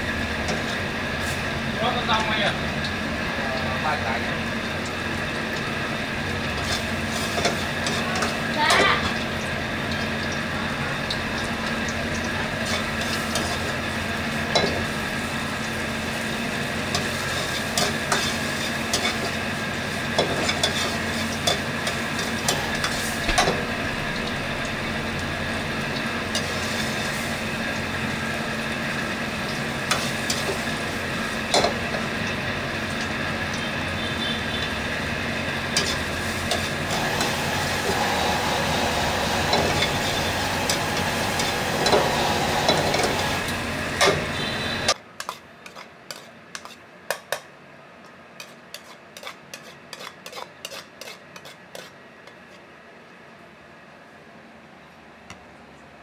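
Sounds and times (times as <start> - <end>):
food sizzling in a wok: 0.0 - 45.4
steady hum: 18.6 - 45.0
spatula scraping and knocking pan: 45.2 - 47.4, 48.4 - 52.6.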